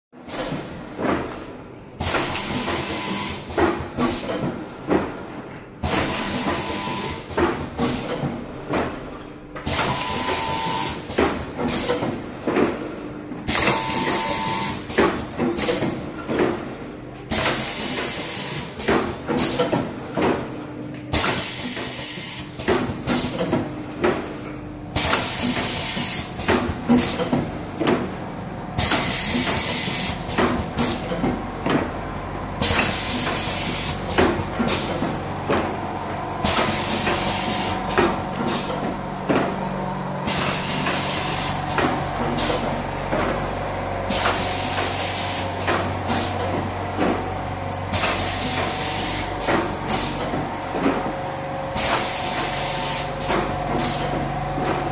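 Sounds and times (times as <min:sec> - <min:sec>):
pneumatic cylinders hissing: 0:38.4 - 0:38.8, 0:40.3 - 0:41.7, 0:46.1 - 0:46.4, 0:49.9 - 0:50.2, 0:51.8 - 0:53.2, 0:53.8 - 0:54.1.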